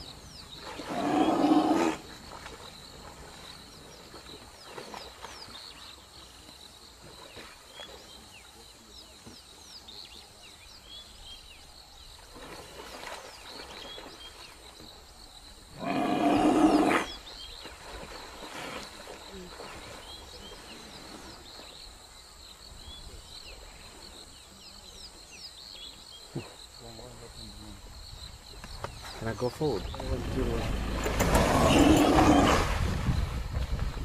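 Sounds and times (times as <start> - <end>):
large animal harsh call: 31.3 - 32.7.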